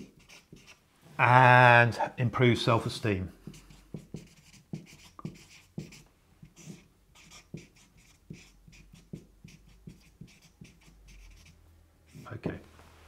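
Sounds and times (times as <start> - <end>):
marker scratching on paper: 0.0 - 0.8, 3.4 - 12.5.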